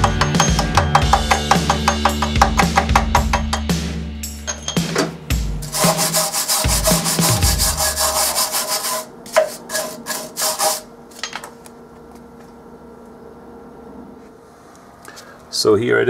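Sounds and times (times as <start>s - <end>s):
wire brush scraping metal: 5.6s - 10.9s.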